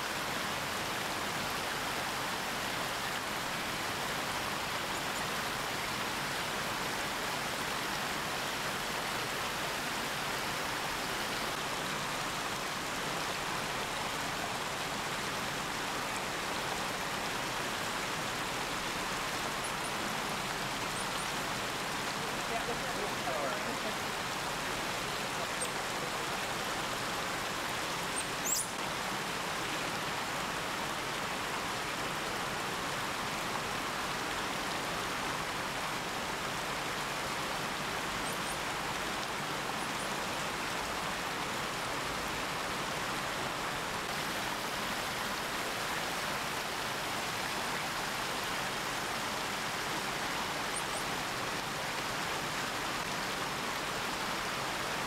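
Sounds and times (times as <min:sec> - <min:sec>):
faint high chirps: 0:28.2 - 0:28.8.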